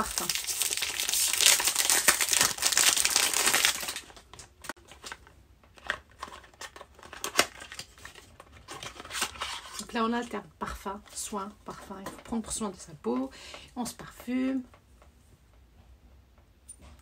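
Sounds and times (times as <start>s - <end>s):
packaging crinkling: 0.0s - 10.0s
packaging rustling: 0.0s - 10.3s.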